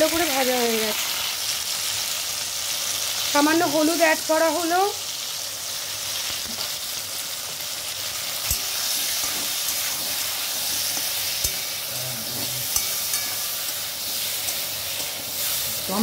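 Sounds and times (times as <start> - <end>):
vegetables sizzling in hot oil: 0.0 - 16.0
spatula knocking against wok: 12.7 - 13.8.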